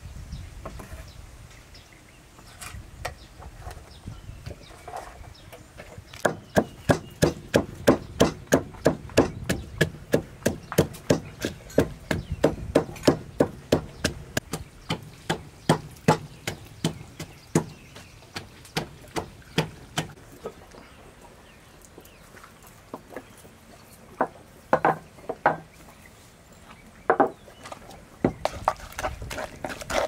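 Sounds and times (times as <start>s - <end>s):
pestle pounding in wooden mortar: 6.2s - 20.2s, 28.2s - 30.0s.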